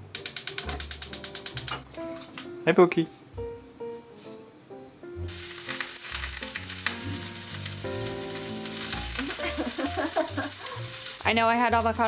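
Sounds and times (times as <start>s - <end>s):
background music: 0.0s - 12.0s
pasta sizzling in hot oil: 5.3s - 12.0s.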